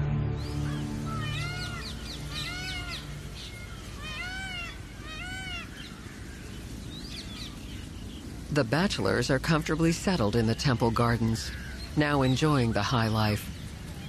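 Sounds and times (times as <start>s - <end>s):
short rising and falling animal calls: 0.5s - 5.8s.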